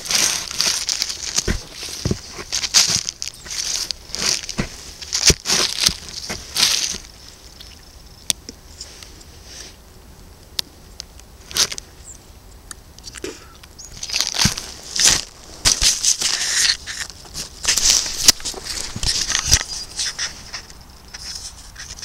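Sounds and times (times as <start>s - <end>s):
plastic wrapper crinkling underfoot: 0.0s - 7.8s, 13.9s - 22.0s.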